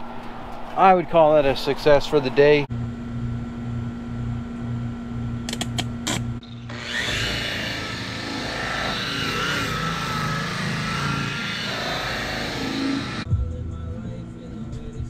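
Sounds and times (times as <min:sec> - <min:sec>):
electric polisher running: 0:05.5 - 0:13.3.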